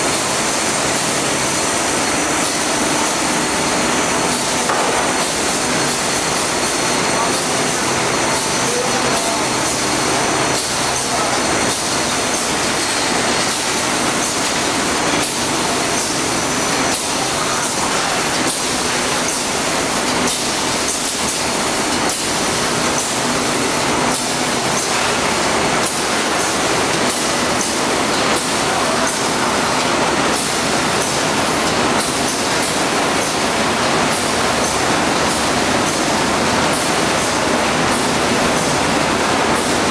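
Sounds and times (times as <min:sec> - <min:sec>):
machine hissing: 0:00.0 - 0:39.9.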